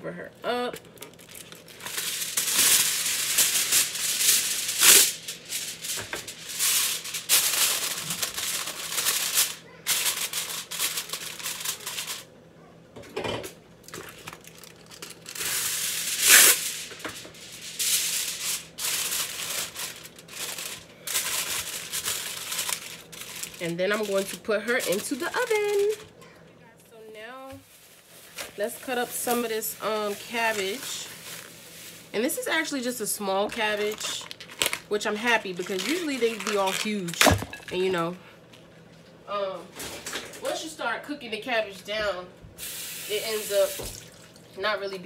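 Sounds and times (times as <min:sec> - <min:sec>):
aluminium foil crinkling: 0:00.5 - 0:12.3, 0:13.8 - 0:26.2, 0:27.6 - 0:38.6
foil tearing: 0:00.8 - 0:12.3, 0:13.9 - 0:26.0, 0:27.6 - 0:38.0.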